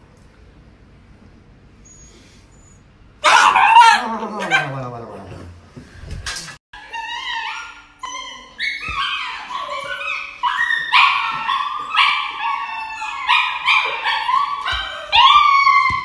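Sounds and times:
dog yelping and crying: 3.2s - 4.8s, 6.8s - 16.0s.

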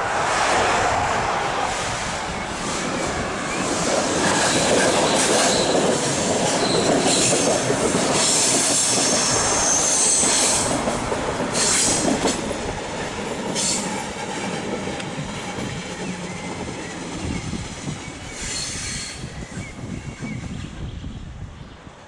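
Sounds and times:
passenger train running past: 0.0s - 22.0s
train wheels squealing: 3.4s - 10.8s, 11.5s - 12.4s, 13.2s - 14.7s, 15.3s - 20.7s.

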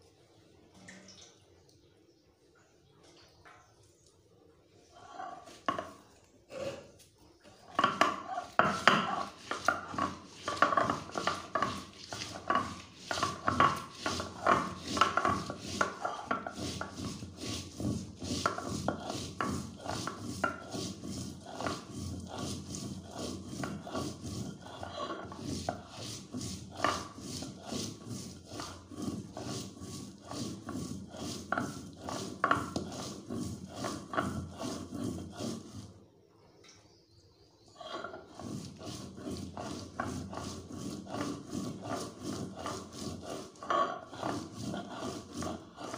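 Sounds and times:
grinding stone scraping on slab: 5.0s - 36.0s, 37.8s - 45.9s.

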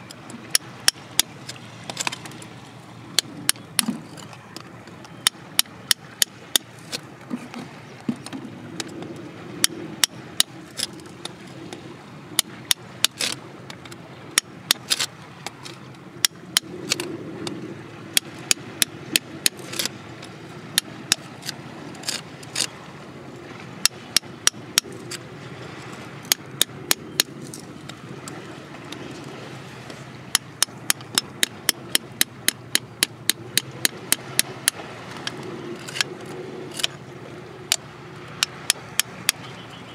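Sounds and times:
hand tool tapping on rock: 0.4s - 2.4s, 3.2s - 8.9s, 9.6s - 11.4s, 12.4s - 17.1s, 18.2s - 19.9s, 23.8s - 25.2s, 26.2s - 27.6s, 30.3s - 36.1s, 36.7s - 37.0s, 38.4s - 39.4s.

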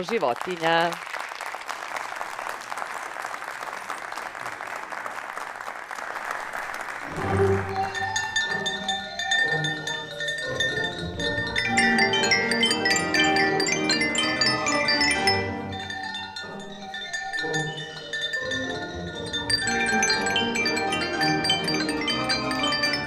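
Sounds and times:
audience applause: 0.0s - 8.5s
xylophone and glockenspiel notes: 7.1s - 23.0s.

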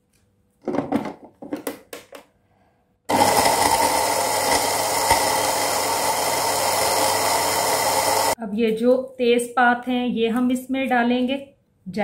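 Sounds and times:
spice grinder motor whirring: 3.1s - 8.4s.

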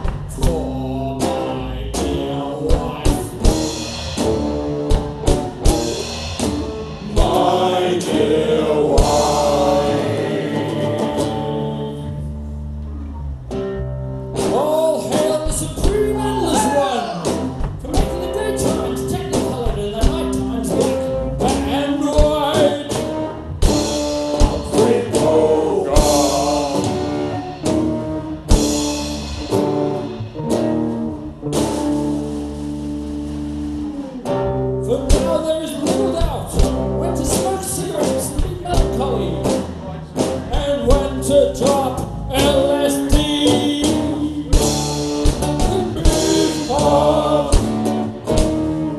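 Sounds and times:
live band playing: 0.0s - 48.9s
drum and cymbal hits: 2.0s - 11.6s, 14.4s - 34.3s, 35.1s - 48.9s.

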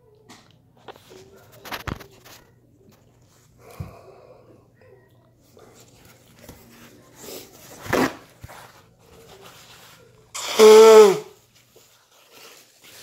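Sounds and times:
man blowing his nose: 10.4s - 11.4s.

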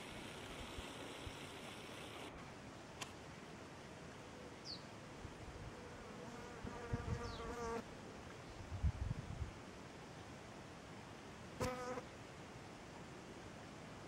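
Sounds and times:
insect buzzing: 6.1s - 7.8s, 11.6s - 12.1s.

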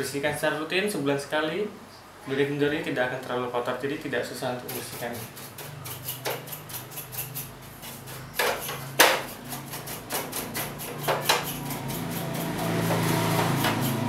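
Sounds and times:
steady rubbing: 4.7s - 14.0s.

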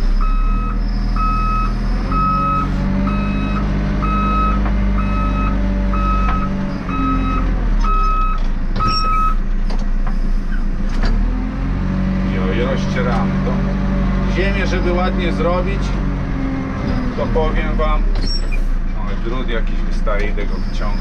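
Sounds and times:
diesel engine running: 0.0s - 21.0s
reversing alarm beeps: 0.2s - 9.4s.

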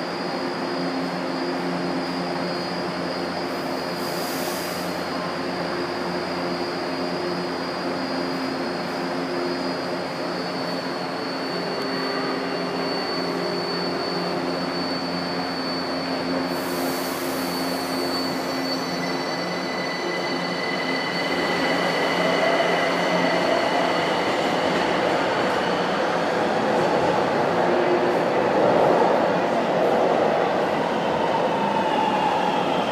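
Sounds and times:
thin high whistle: 1.8s - 24.8s.

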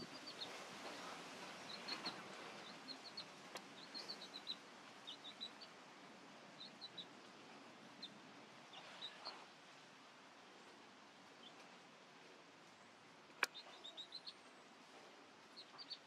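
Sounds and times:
quiet hiss: 0.0s - 16.0s.

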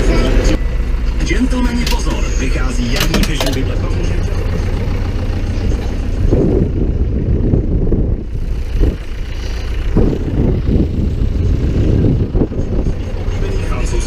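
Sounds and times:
tractor diesel engine running: 0.0s - 14.0s
loud rattling bursts: 1.8s - 6.3s.

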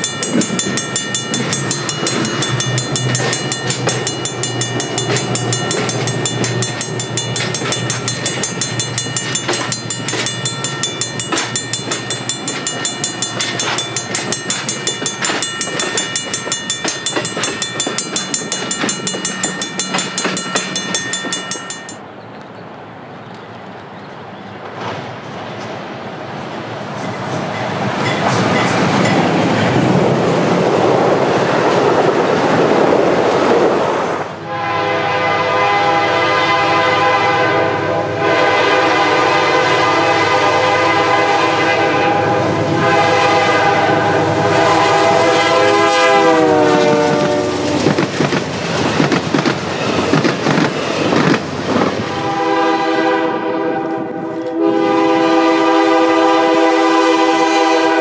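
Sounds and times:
wheels clattering over rail joints: 0.0s - 22.4s, 46.5s - 52.1s
train rumbling: 0.0s - 58.0s
train air horn: 34.4s - 47.8s, 52.0s - 58.0s.

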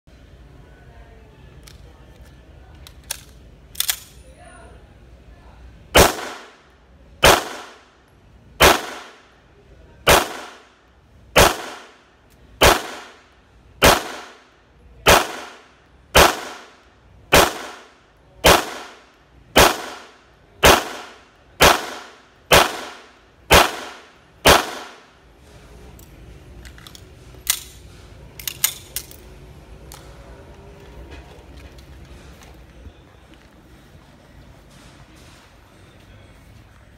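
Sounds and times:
pistol handling clicks: 1.6s - 4.2s, 25.9s - 29.3s
pistol shots with echo: 6.0s - 6.6s, 7.2s - 7.8s, 8.6s - 9.2s, 10.0s - 10.7s, 11.4s - 12.0s, 12.6s - 13.2s, 13.8s - 14.4s, 15.0s - 25.1s.

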